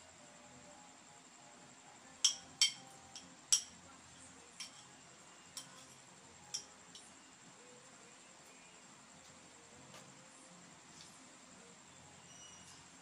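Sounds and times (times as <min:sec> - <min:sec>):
metal spoon clinking on bowl: 0:02.2 - 0:03.8, 0:04.6 - 0:04.9, 0:05.5 - 0:07.1.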